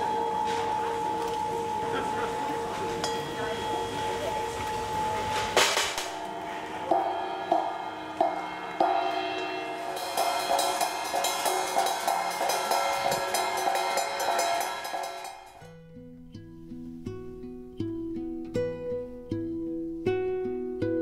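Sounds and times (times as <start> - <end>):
sustained music chords: 6.1 - 20.5
jingling high rattle: 9.9 - 15.6.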